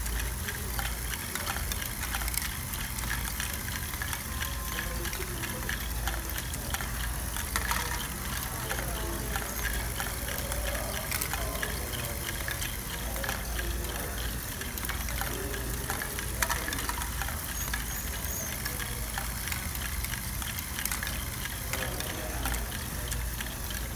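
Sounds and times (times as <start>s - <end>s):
motors and gears whirring: 0.0s - 23.9s
plastic balls clicking and clattering: 0.0s - 23.9s.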